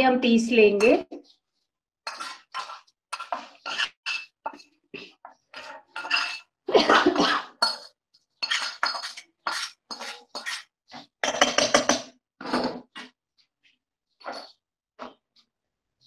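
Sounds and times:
metal spoon scraping a pan: 0:00.6 - 0:01.4, 0:02.0 - 0:13.0, 0:14.2 - 0:14.6.

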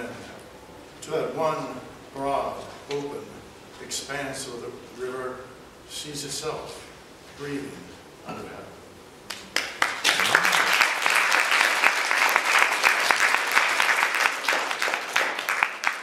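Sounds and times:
audience applauding: 0:09.3 - 0:16.0.

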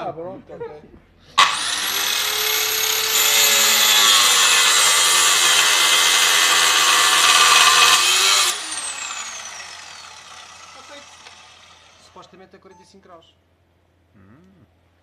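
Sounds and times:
abrasive disc grinding metal: 0:01.4 - 0:12.1
saw motor whining: 0:01.4 - 0:12.3.

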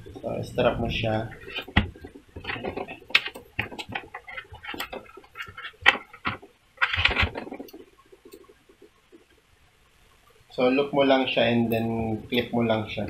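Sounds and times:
plastic parts clicking: 0:01.3 - 0:08.4.

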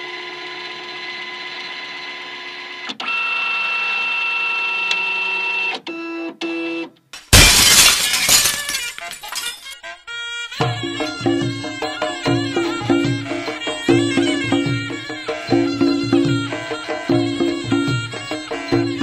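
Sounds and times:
glass shattering effect: 0:07.2 - 0:09.8.

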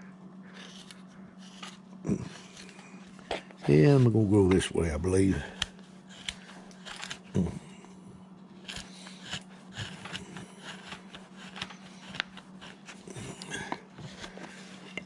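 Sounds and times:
steady low hum: 0:00.0 - 0:15.0
carving gouge scraping wood: 0:00.6 - 0:01.8, 0:06.1 - 0:07.2, 0:08.6 - 0:13.1.

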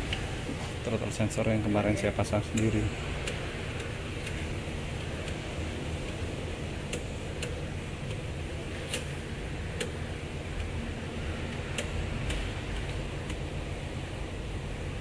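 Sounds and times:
steady low hum: 0:00.0 - 0:15.0
light clicks and taps of tools: 0:06.9 - 0:08.2.

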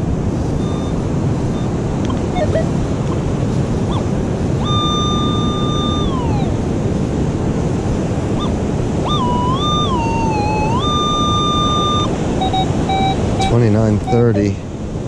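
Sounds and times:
surf rushing: 0:00.0 - 0:15.0
metal detector tone: 0:00.6 - 0:03.2, 0:03.9 - 0:06.6, 0:08.4 - 0:14.6.

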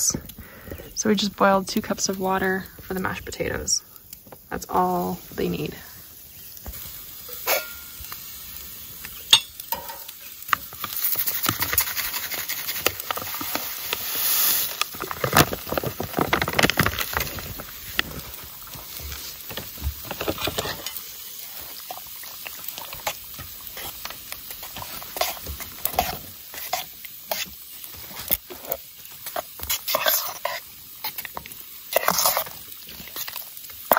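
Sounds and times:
spoon stirring and scraping pot: 0:06.6 - 0:08.2, 0:09.2 - 0:33.9.

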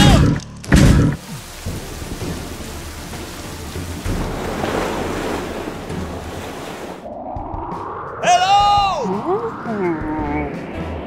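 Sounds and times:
steady rain: 0:01.2 - 0:07.0
low rumble: 0:01.5 - 0:11.0.

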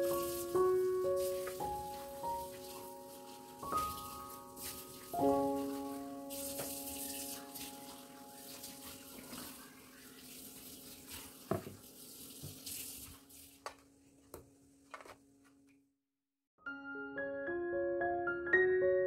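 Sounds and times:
soft background music: 0:00.0 - 0:09.5.

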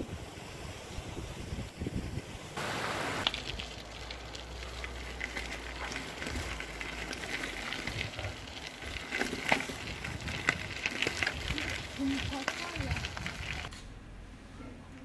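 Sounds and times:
bicycle tyres crunching gravel: 0:02.6 - 0:13.7.

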